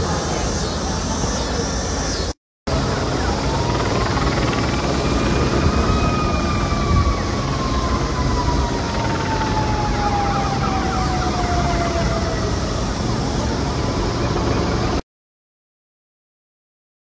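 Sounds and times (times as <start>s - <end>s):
loud steady rushing noise: 0.0s - 15.0s
siren wailing: 2.8s - 15.0s.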